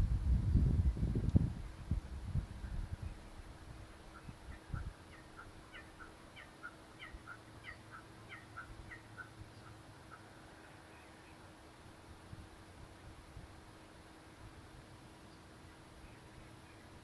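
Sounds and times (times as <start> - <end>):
kookaburra cackling call: 4.1 - 10.3.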